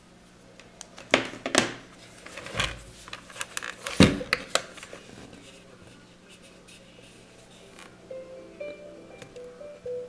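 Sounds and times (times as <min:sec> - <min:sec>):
rubbing and handling noise: 0:01.0 - 0:08.0.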